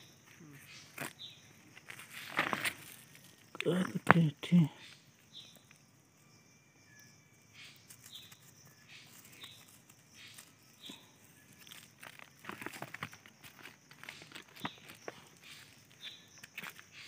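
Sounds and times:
bird chirping: 0.0s - 17.0s
hand digging in gravelly soil: 0.9s - 4.2s, 7.8s - 17.0s.

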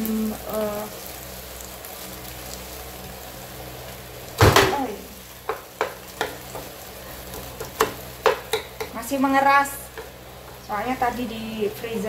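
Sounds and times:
food sizzling in frying pan: 0.0s - 12.0s
spatula stirring: 5.2s - 11.8s.

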